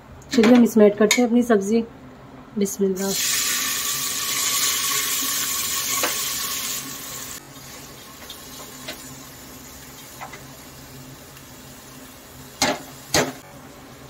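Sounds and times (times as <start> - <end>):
food sizzling in hot oil: 3.1 - 13.5.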